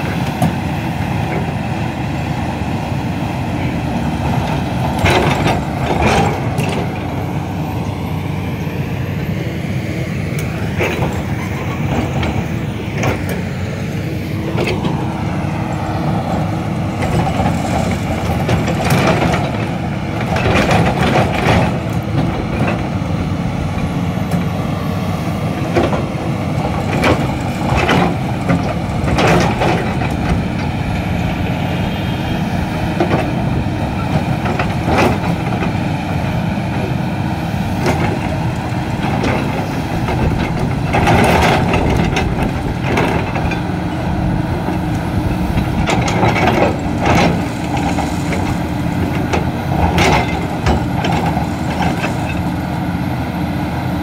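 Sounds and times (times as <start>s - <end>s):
excavator diesel engine: 0.0s - 54.0s.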